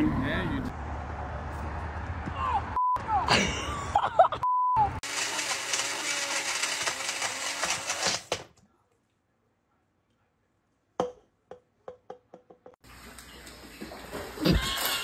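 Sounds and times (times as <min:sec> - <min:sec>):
blender running: 0:05.0 - 0:08.3.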